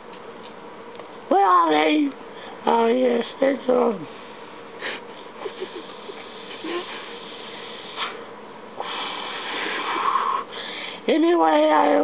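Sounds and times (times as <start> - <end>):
long hissing exhale: 4.1 - 11.1
lip clicks and puffs: 5.5 - 10.1.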